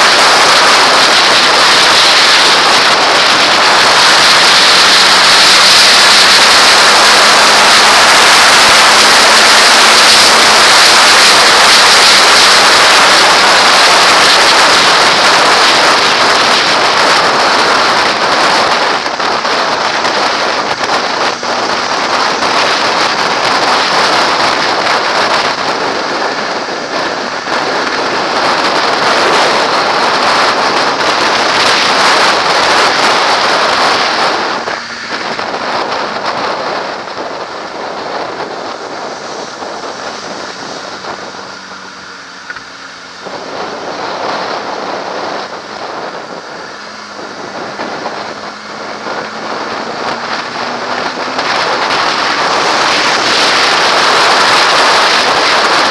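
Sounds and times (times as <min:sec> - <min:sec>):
wind rushing over camera: 0:00.0 - 0:55.9.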